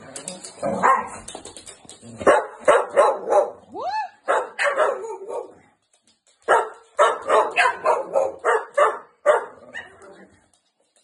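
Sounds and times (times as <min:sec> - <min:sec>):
dog barking: 0:02.2 - 0:03.6, 0:04.2 - 0:05.6, 0:06.5 - 0:10.0.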